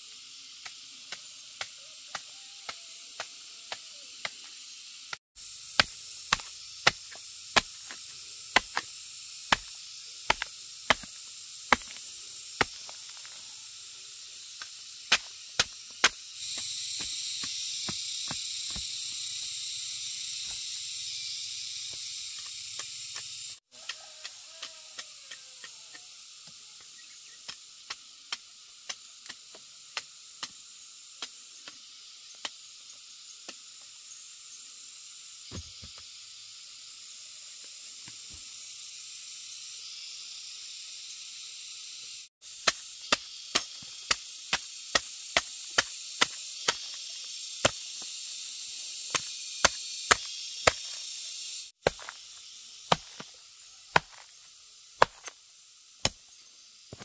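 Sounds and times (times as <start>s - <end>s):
steady high hiss: 0.0s - 57.0s
machete chopping: 5.4s - 13.4s, 14.5s - 19.0s, 35.5s - 36.0s, 42.6s - 48.1s, 49.1s - 51.1s, 51.8s - 54.4s, 55.0s - 55.4s, 56.0s - 56.3s.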